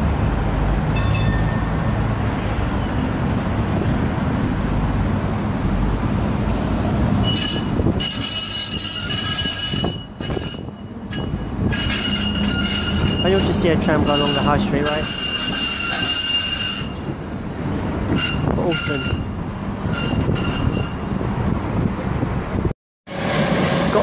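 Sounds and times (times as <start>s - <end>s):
tram rumbling past: 0.0s - 24.0s
high squealing tones: 5.4s - 21.1s.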